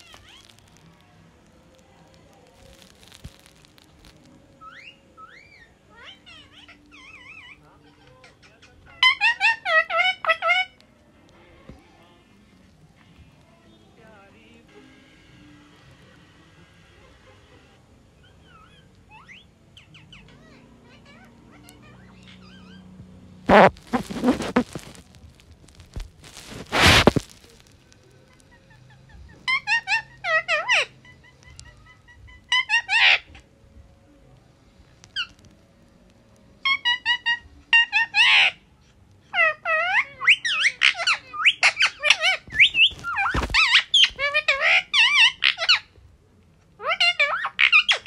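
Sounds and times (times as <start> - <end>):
parakeet harsh squawk: 0.0 - 0.7, 4.6 - 10.8, 23.5 - 25.0, 26.3 - 27.6, 29.3 - 33.4, 36.6 - 38.6, 39.2 - 45.9, 46.8 - 48.0
parakeet chirps and whistles: 4.6 - 7.6, 23.5 - 25.0, 39.4 - 45.8
parakeet hissing: 23.5 - 25.0, 26.4 - 27.3.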